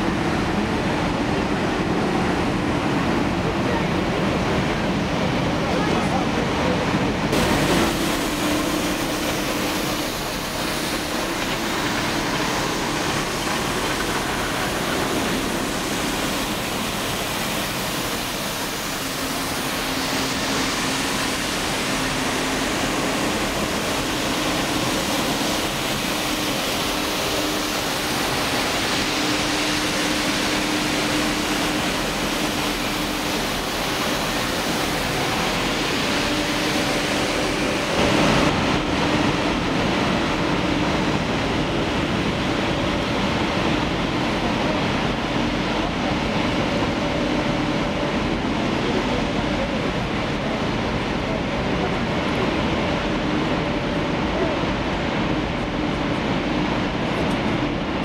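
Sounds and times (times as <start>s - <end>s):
street sweeper brushes hissing: 7.3s - 38.6s.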